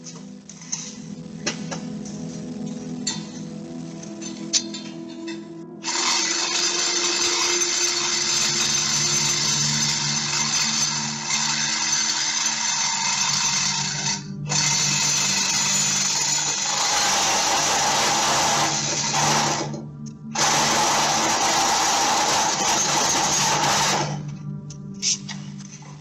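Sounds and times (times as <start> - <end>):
power saw cutting: 5.8 - 24.2.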